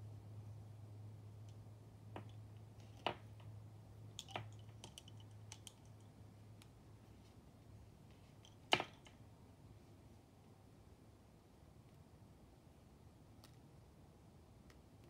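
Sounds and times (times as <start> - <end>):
lace bobbins clicking: 4.1 - 6.8.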